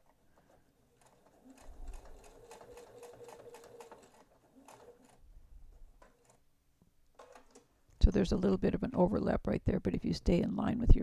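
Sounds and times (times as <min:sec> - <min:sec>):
sewing machine stitching: 0:00.9 - 0:05.3.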